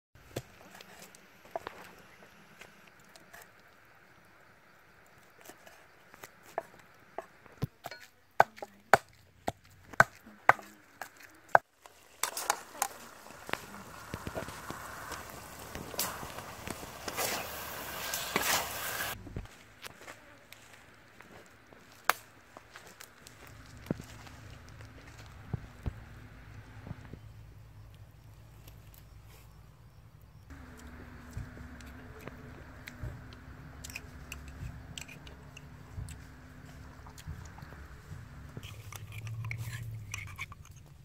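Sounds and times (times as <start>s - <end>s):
food sizzling in a wok: 12.4s - 19.2s.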